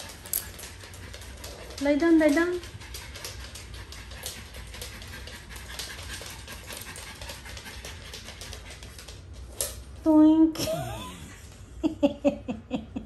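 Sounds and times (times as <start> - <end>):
small dog panting: 0.0 - 9.3.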